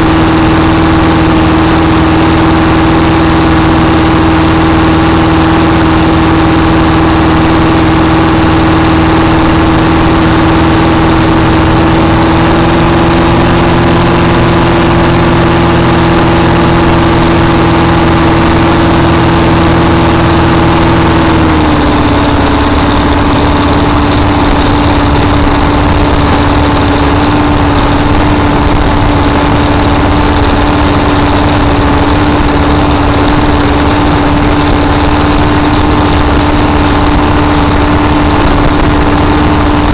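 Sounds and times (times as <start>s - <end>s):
boat engine running: 0.0s - 39.9s.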